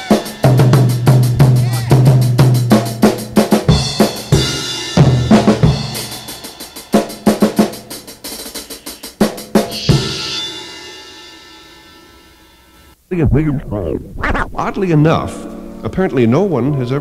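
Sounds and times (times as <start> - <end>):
fast drum kit playing: 0.0 - 11.3
bass guitar: 13.1 - 16.2.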